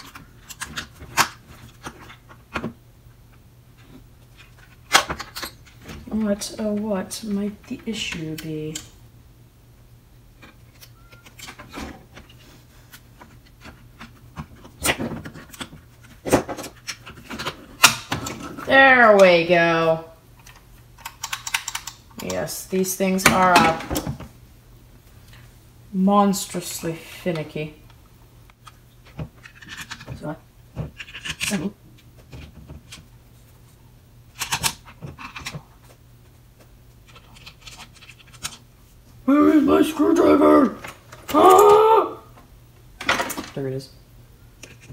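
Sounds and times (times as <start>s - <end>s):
plastic parts scraping and clicking: 0.0s - 6.8s, 10.4s - 18.7s, 28.5s - 33.1s, 34.3s - 36.0s, 37.0s - 38.6s, 44.6s - 44.9s
steady low hum: 0.0s - 44.9s.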